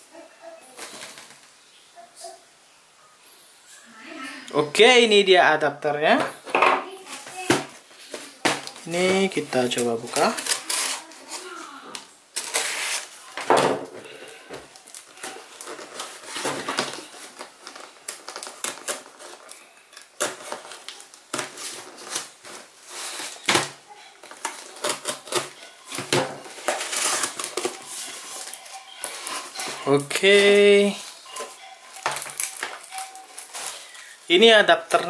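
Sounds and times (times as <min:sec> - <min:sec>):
knife slicing packing tape: 0:10.4 - 0:11.1, 0:12.4 - 0:13.1, 0:26.7 - 0:27.7.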